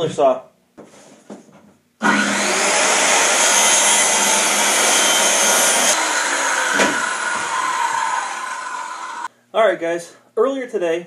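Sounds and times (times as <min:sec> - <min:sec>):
circular saw cutting plywood: 0:02.0 - 0:09.3.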